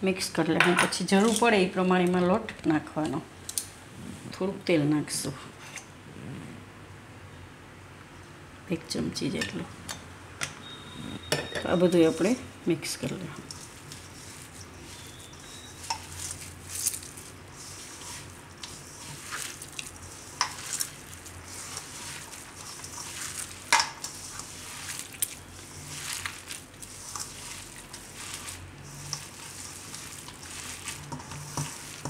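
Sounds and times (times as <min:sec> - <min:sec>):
wet squelching of mixture: 0:13.0 - 0:32.0.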